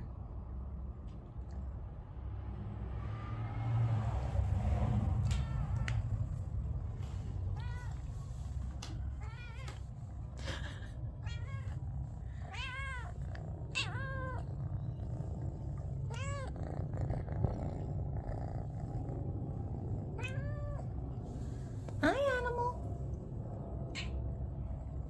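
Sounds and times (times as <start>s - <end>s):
low rumble: 0.0s - 25.0s
cat meowing: 5.0s - 6.4s, 7.3s - 9.9s, 11.2s - 15.0s, 15.9s - 16.9s, 20.2s - 21.0s, 23.9s - 24.2s.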